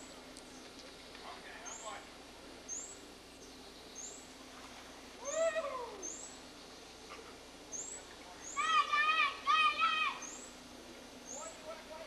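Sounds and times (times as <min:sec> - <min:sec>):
bird chirping: 0:01.6 - 0:02.0, 0:02.6 - 0:04.4, 0:05.2 - 0:08.8, 0:10.1 - 0:10.6, 0:11.2 - 0:11.7
bird call rising and falling: 0:05.2 - 0:06.8, 0:07.7 - 0:10.6.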